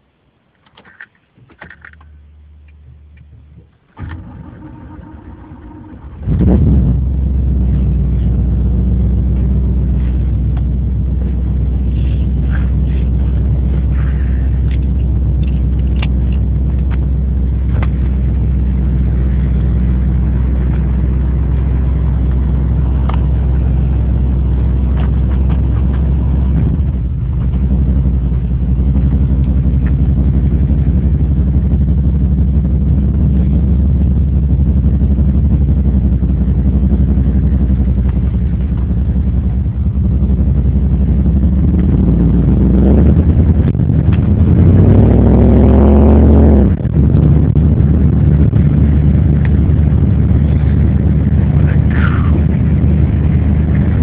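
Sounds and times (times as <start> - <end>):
car engine revving and idling: 2.0 - 54.0
starter motor cranking: 4.0 - 6.6.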